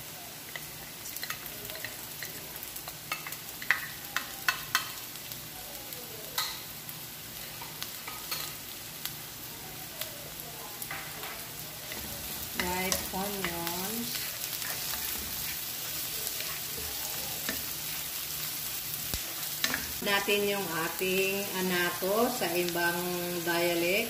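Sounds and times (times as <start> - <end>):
onions sizzling in oil: 0.0 - 24.0
spatula stirring: 10.8 - 20.0.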